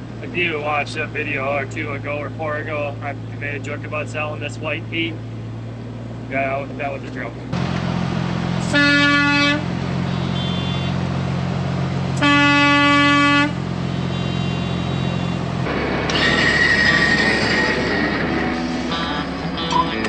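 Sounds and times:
diesel engine drone: 0.0s - 20.0s
truck air horn blasts: 8.6s - 11.0s, 12.2s - 15.4s.

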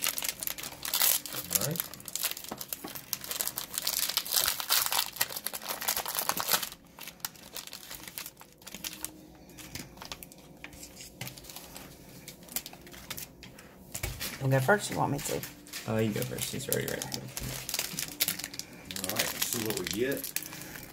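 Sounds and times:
plastic wrapping crinkling and tearing: 0.0s - 20.9s.

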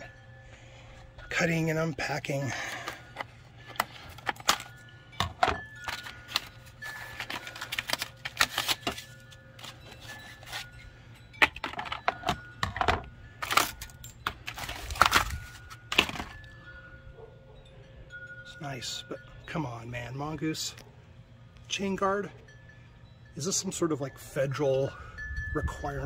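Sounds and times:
wind chimes ringing: 0.0s - 26.0s
paper rustling and tearing: 5.9s - 10.7s, 14.5s - 16.3s.

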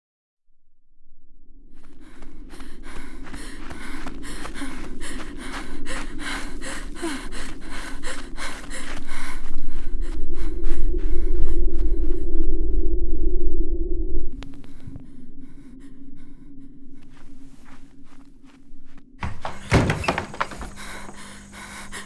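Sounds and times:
low rumble: 1.1s - 19.1s
woman panting: 1.8s - 12.5s, 14.6s - 18.2s, 19.2s - 22.0s.

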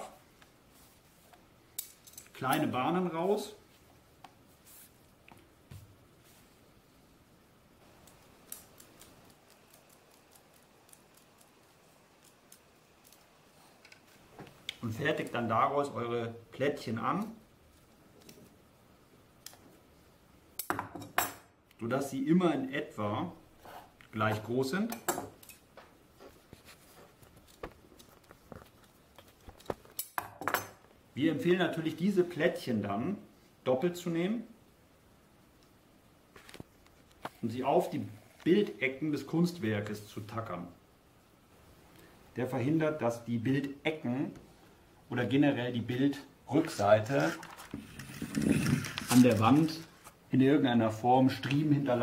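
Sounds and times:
soft handling rustles: 0.0s - 6.8s, 25.6s - 30.0s, 36.3s - 38.9s, 45.8s - 50.3s.

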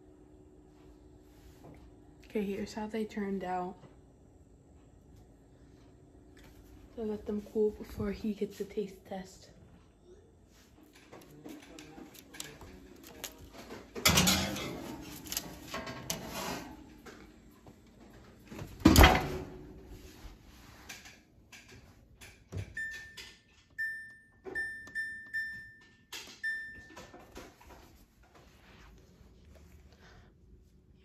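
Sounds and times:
baking trays clattering: 10.8s - 20.0s
oven keypad beeps: 22.7s - 27.3s.

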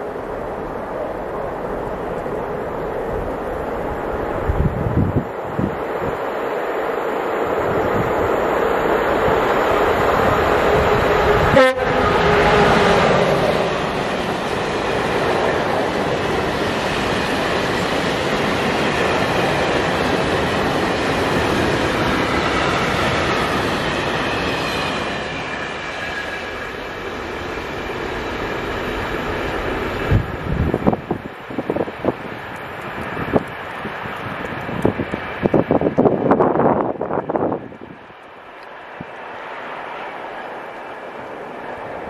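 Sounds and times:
locomotive horn: 11.4s - 12.8s.

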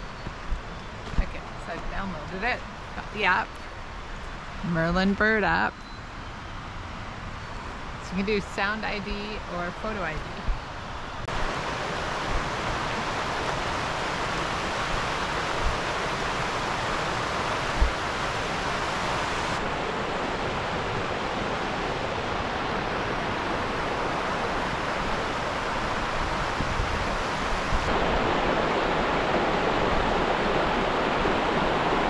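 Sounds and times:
creek water rushing: 11.2s - 32.0s.

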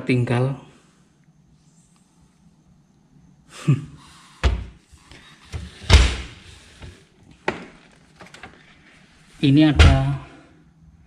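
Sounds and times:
knocks and thuds: 4.4s - 4.8s, 9.8s - 10.2s.

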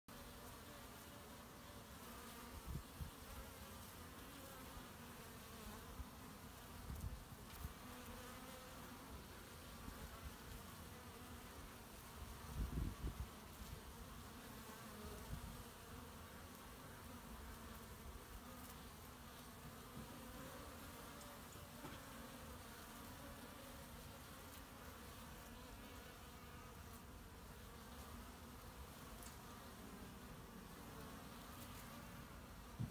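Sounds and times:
bees buzzing: 0.1s - 32.9s.

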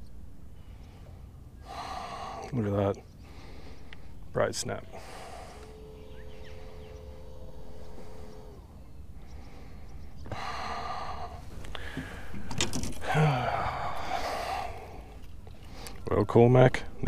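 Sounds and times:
steady hum: 0.0s - 17.0s
man sighing heavily: 9.6s - 15.9s.

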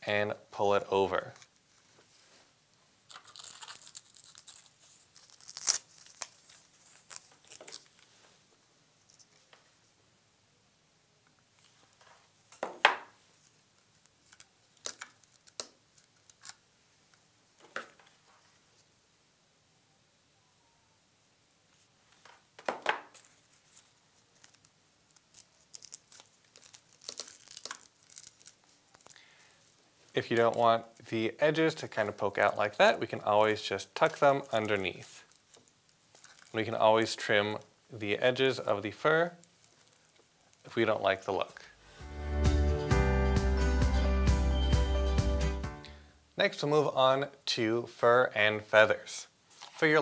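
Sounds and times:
fur and velcro ripping and rustling: 3.1s - 8.2s, 13.4s - 16.6s, 23.1s - 29.2s, 34.0s - 36.8s.

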